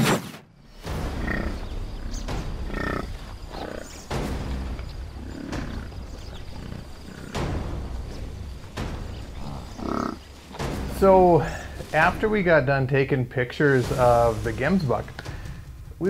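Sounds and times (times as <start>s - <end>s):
buffalo grunting and lowing: 0.8s - 10.9s.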